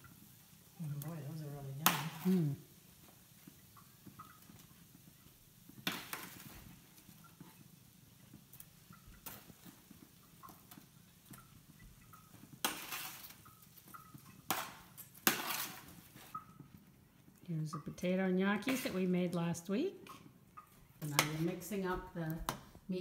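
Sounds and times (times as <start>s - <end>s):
tongs scraping on metal tray: 11.3s - 16.5s, 18.5s - 19.1s.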